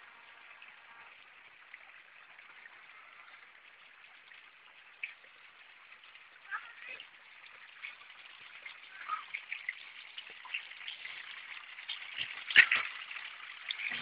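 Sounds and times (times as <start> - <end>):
water trickling and splashing: 0.0 - 14.0.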